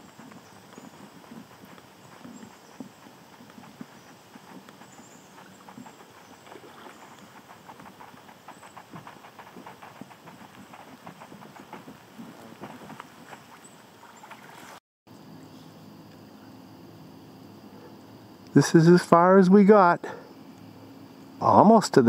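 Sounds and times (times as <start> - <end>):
water splashing around kayak: 6.4 - 8.0, 9.5 - 14.8.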